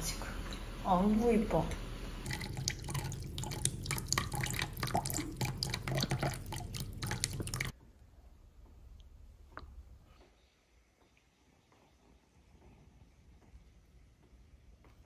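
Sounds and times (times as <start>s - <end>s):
low steady hum: 0.0s - 15.0s
water dripping: 2.2s - 7.8s.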